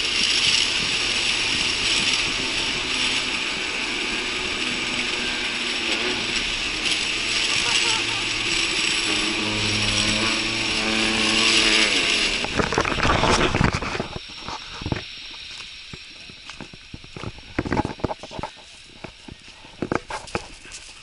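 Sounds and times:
roller slide rattling: 0:00.0 - 0:16.0.

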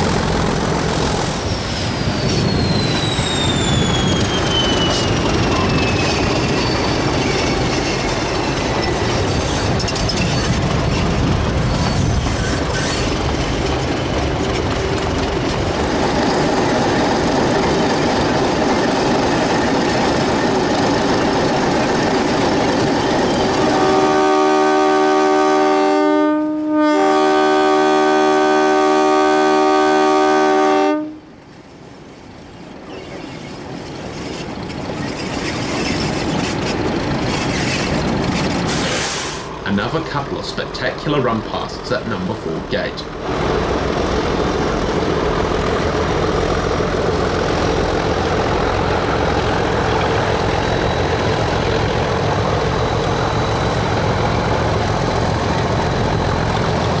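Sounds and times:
diesel locomotive engine rumble: 0:00.0 - 0:57.0
held horn chord: 0:23.6 - 0:31.2.

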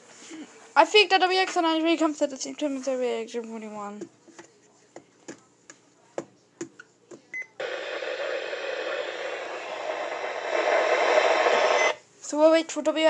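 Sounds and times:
radio static hiss: 0:07.6 - 0:12.0.

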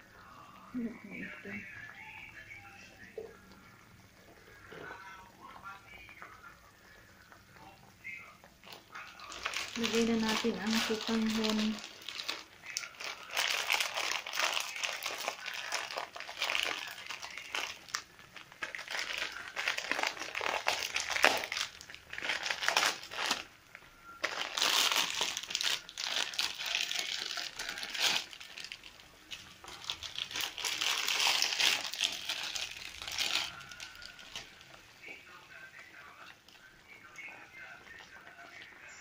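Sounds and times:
plastic packet crinkling: 0:08.6 - 0:39.0.

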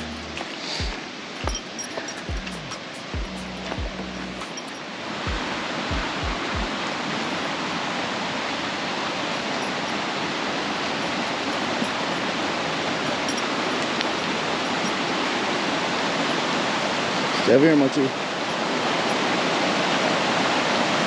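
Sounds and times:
creek water rushing over rocks: 0:00.0 - 0:21.0
low thumps: 0:02.2 - 0:04.4, 0:05.3 - 0:06.7.

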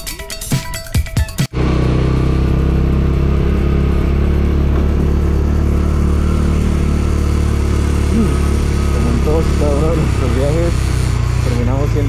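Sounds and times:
motorcycle engine running: 0:01.5 - 0:12.0.

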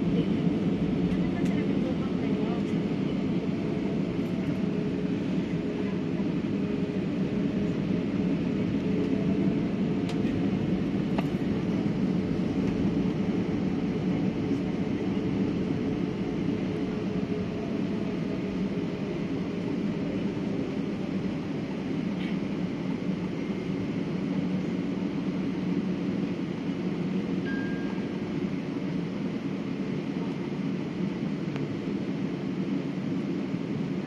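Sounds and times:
faint steady whine: 0:00.0 - 0:34.0
jet cabin low hum: 0:00.0 - 0:34.0.

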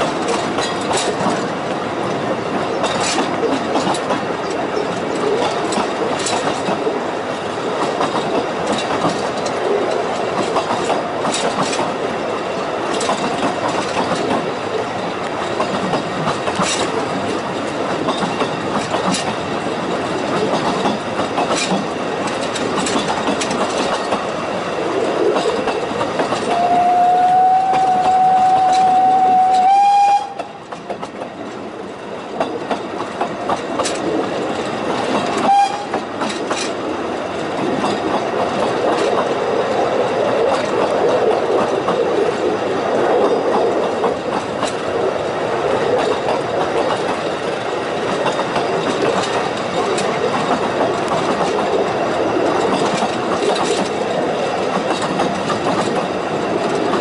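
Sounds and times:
train rumble: 0:00.0 - 0:57.0
train wheels clicking over rail joints: 0:00.0 - 0:57.0
steam whistle: 0:26.5 - 0:30.4, 0:35.5 - 0:35.9.

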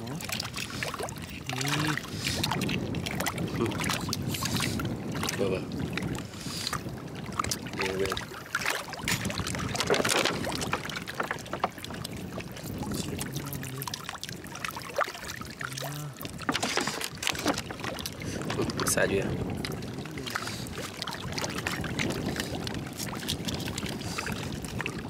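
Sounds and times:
water splashing from bottle: 0:07.3 - 0:25.0
oyster shells clicking and scraping: 0:09.0 - 0:12.0, 0:16.3 - 0:18.7.

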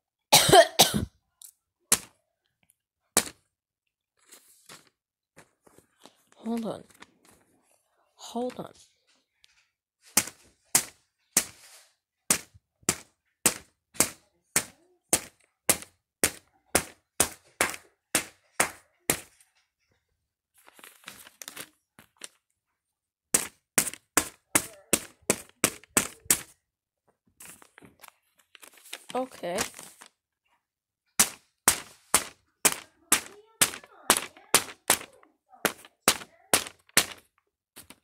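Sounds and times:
faint paper rustling: 0:01.9 - 0:38.0
scissors snipping paper: 0:10.1 - 0:19.4, 0:23.4 - 0:26.6, 0:31.2 - 0:38.0.

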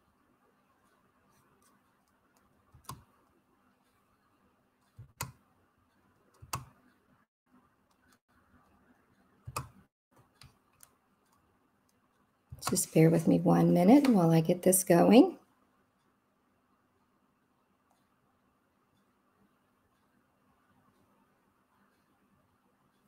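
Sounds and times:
faint steady hum: 0:00.0 - 0:23.0
mouse and keyboard clicks: 0:01.4 - 0:03.3, 0:04.8 - 0:05.4, 0:06.3 - 0:07.0, 0:09.4 - 0:12.9.

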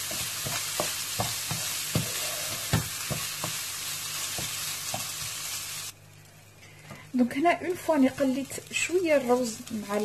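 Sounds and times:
wooden spoon knocking a pan: 0:00.0 - 0:03.7, 0:04.3 - 0:05.4
rice sizzling in a pan: 0:00.0 - 0:06.5, 0:07.4 - 0:10.0.

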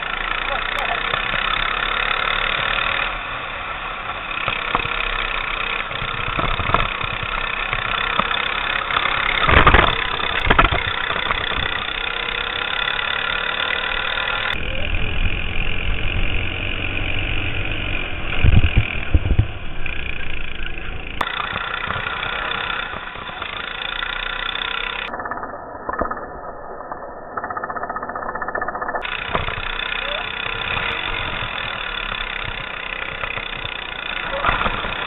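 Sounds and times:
go-kart engine running: 0:00.0 - 0:35.0
low rumbling wind buffets: 0:14.6 - 0:23.6.

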